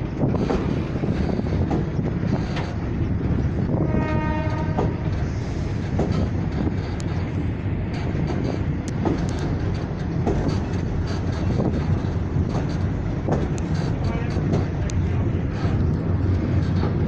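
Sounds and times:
rail-joint clicks: 0.0 - 17.0
train rolling rumble: 0.0 - 17.0
train horn: 3.8 - 5.1.

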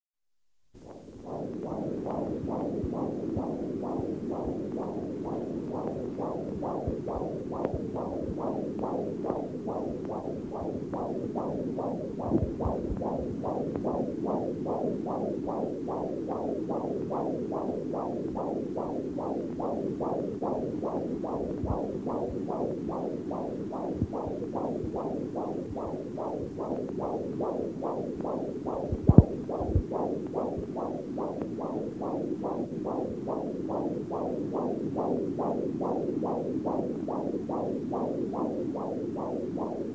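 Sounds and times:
electronic throbbing pulse: 0.8 - 39.9
deep thumps: 1.3 - 15.6, 28.3 - 30.7.

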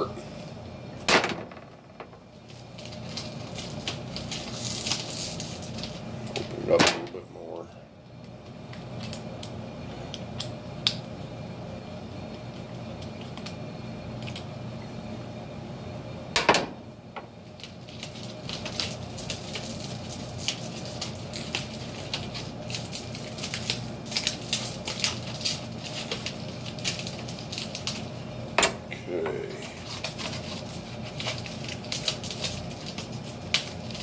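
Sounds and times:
foil duct crinkling: 2.1 - 7.6, 8.2 - 11.0, 17.4 - 28.3, 29.3 - 34.0.

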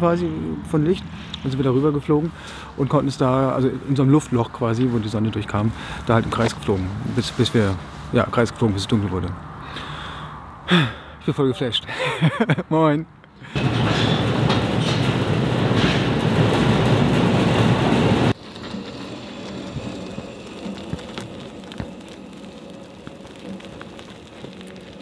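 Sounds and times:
loud steady rushing noise: 13.6 - 25.0.

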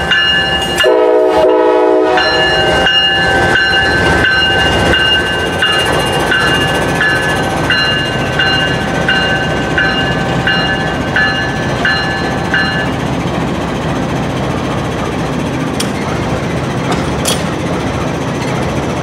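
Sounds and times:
railroad bell ringing: 0.0 - 13.2
diesel locomotive rumbling: 0.0 - 19.0.

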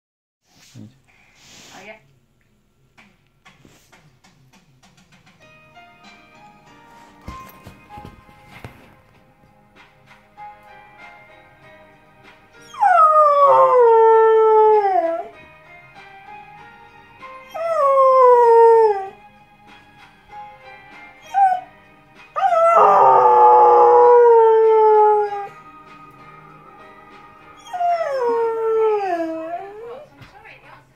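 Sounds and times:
faint television theme tune: 2.6 - 30.9
dog howling: 12.6 - 15.4, 17.4 - 19.2, 22.4 - 25.6, 27.6 - 30.1.

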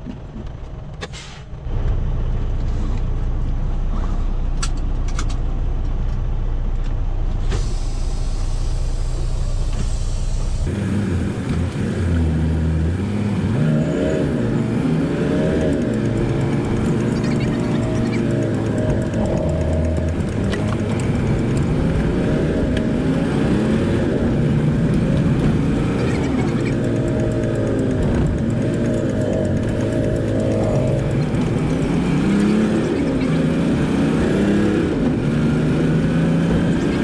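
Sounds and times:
diesel truck engine: 0.0 - 37.0
sharp clicks: 14.5 - 23.0, 24.2 - 33.6.

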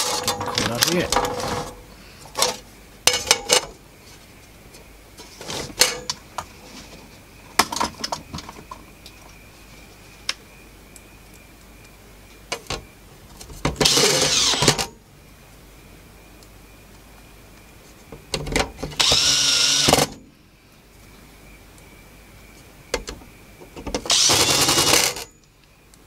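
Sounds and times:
metal cover clanking: 0.0 - 1.8
tool grinding on metal: 0.0 - 1.8, 13.8 - 14.9, 19.0 - 20.1, 24.1 - 25.3.

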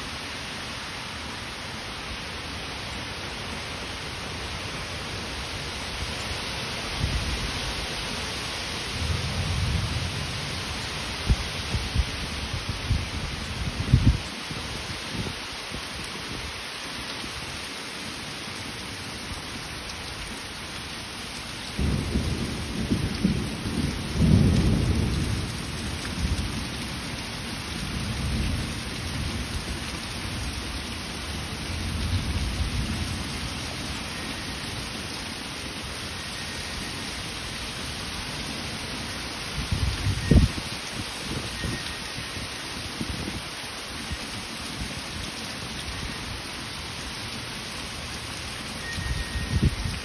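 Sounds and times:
heavy rain pouring: 0.0 - 50.0
thunder rumbling: 21.8 - 26.7.

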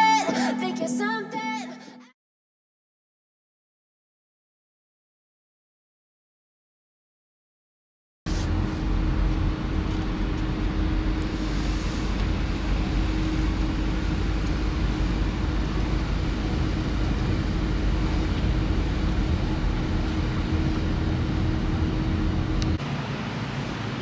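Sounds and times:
outdoor background noise: 8.3 - 24.0
road and engine rumble inside car: 8.3 - 24.0.

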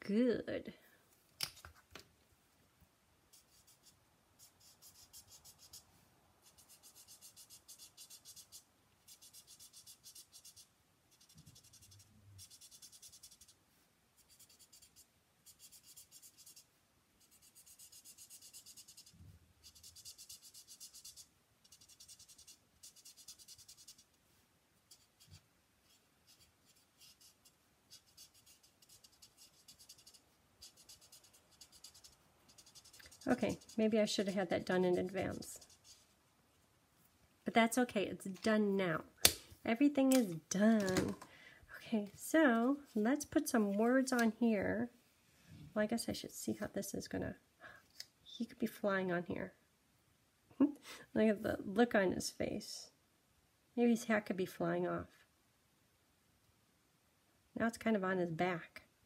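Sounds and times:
marker tip scratching on cardstock: 3.3 - 5.8, 6.4 - 13.6, 14.2 - 24.2, 24.9 - 36.0.

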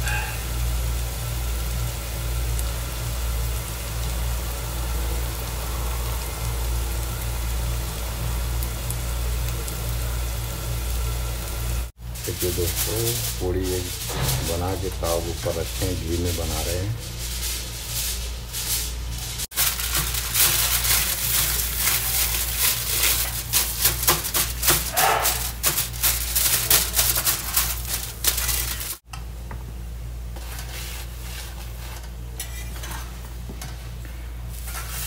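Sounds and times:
flatbread sizzling in a pan: 0.0 - 29.0, 34.5 - 35.0
metal spatula scraping a pan: 30.5 - 33.1.

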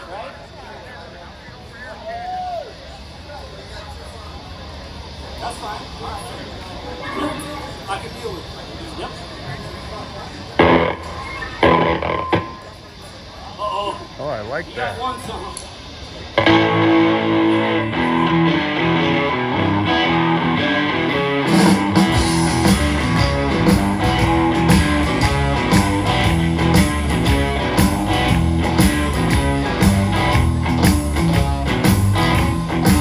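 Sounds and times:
bass guitar: 10.6 - 12.6, 16.4 - 33.0
electric guitar: 10.6 - 12.7, 16.4 - 33.0
drums: 15.7 - 33.0.

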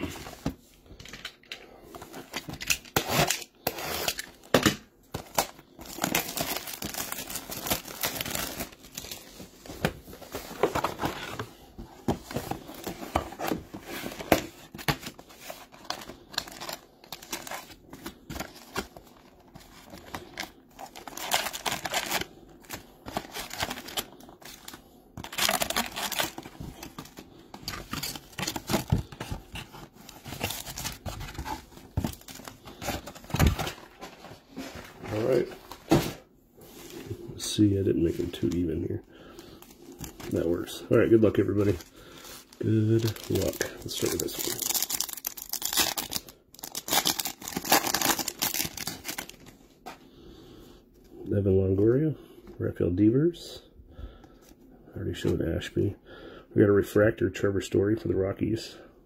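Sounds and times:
foil packs crinkling: 5.1 - 9.6, 14.0 - 34.2, 39.3 - 49.6.

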